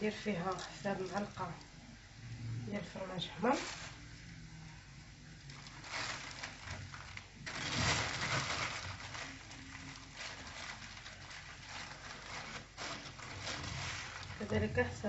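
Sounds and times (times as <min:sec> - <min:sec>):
scratchy rustle: 0:05.6 - 0:15.0.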